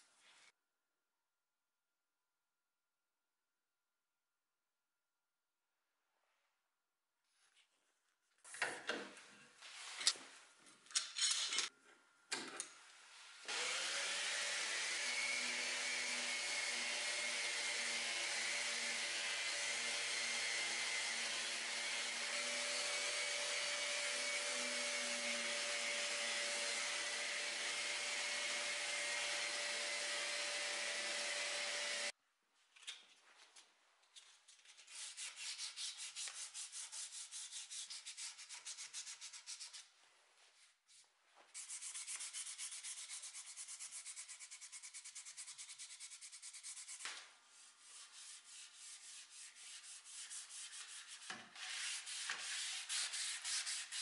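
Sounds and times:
orbital sander sanding wood: 0:13.5 - 0:32.1, 0:47.9 - 0:54.0.

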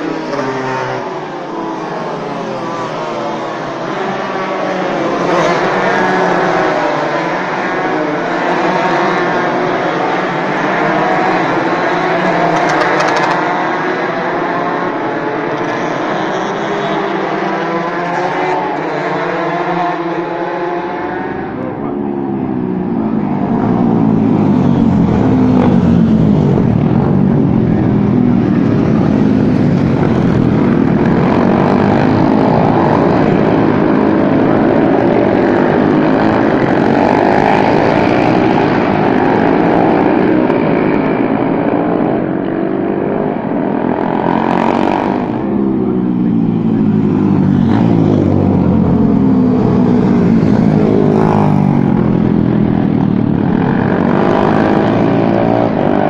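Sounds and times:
racing motorcycles passing: 0:00.0 - 0:56.0.

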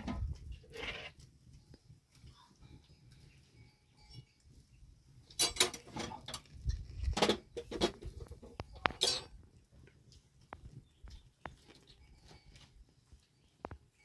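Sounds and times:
metal dishes and utensils clinking: 0:05.3 - 0:06.4, 0:07.2 - 0:09.4.

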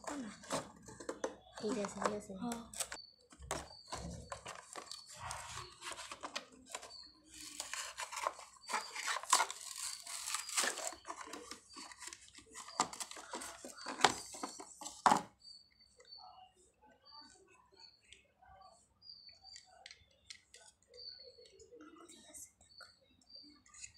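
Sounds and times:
plastic blister pack tearing: 0:07.4 - 0:13.4.

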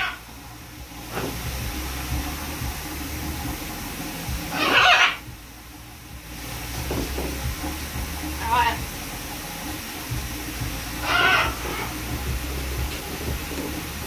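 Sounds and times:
shower water running: 0:00.0 - 0:14.0
macaw squawk: 0:04.5 - 0:05.3, 0:11.0 - 0:12.1.

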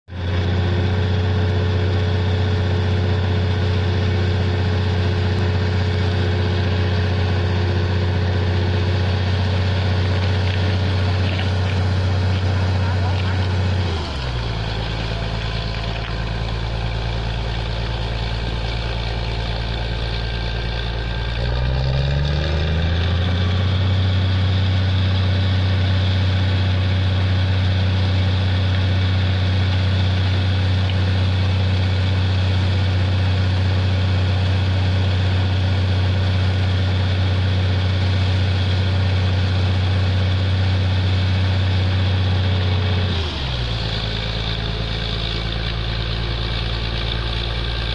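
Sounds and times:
drilling rig engine: 0:00.1 - 0:47.9.

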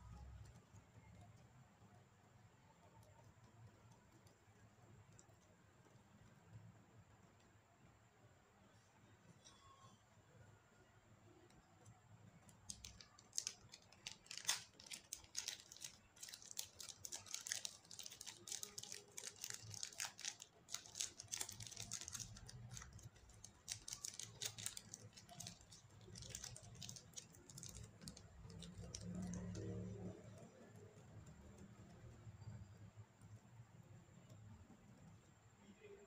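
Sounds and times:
plastic wrapper crinkling: 0:12.7 - 0:29.7.

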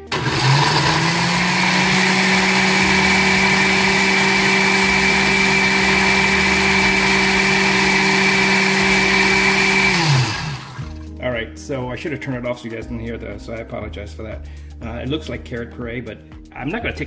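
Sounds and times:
blender motor whining: 0:00.0 - 0:11.0.

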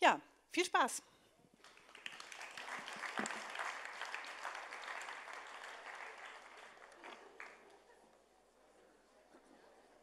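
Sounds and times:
audience applauding: 0:01.6 - 0:07.8.

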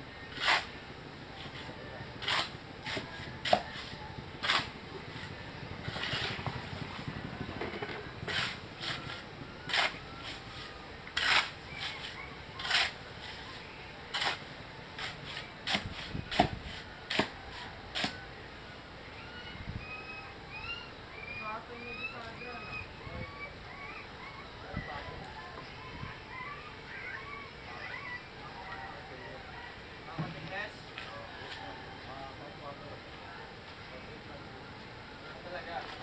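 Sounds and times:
shovel scraping gritty material: 0:00.3 - 0:00.8, 0:01.4 - 0:06.8, 0:08.2 - 0:18.2.

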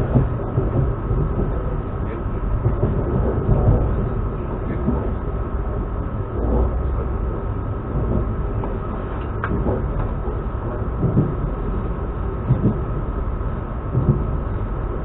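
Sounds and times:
train rumble: 0:00.0 - 0:15.0
low knocks: 0:13.9 - 0:14.4.

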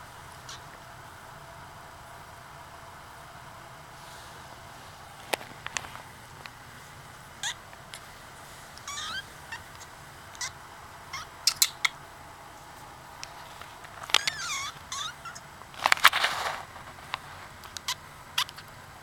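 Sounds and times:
kitten mewing: 0:08.8 - 0:12.0, 0:14.0 - 0:16.1.

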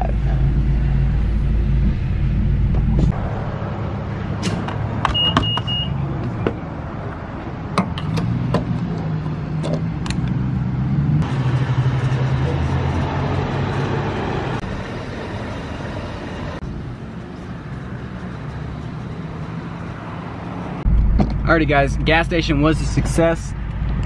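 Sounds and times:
short high beeps: 0:05.1 - 0:06.0.

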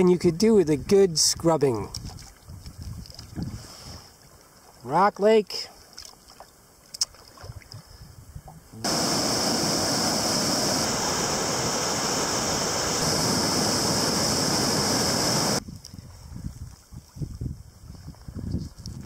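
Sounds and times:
whitewater rushing over rocks: 0:08.8 - 0:15.6.

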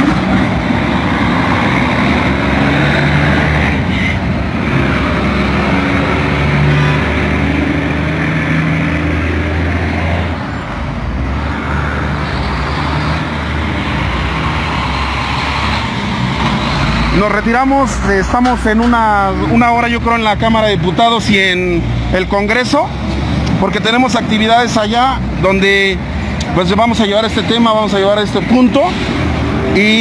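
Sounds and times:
heavy engines rumbling: 0:00.0 - 0:30.0
road noise: 0:00.0 - 0:30.0.

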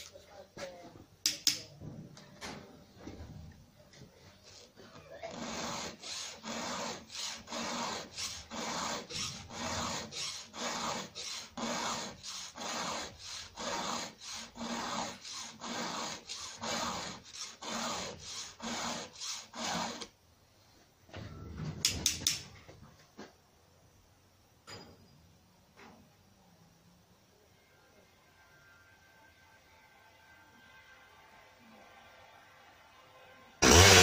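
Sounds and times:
file rasping on saw chain: 0:05.3 - 0:20.1.

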